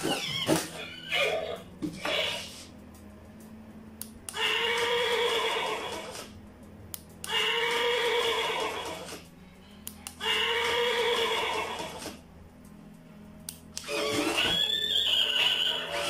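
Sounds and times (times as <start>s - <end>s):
recorded horse whinny: 0.0s - 2.5s, 4.4s - 6.2s, 10.2s - 12.0s, 13.9s - 16.0s.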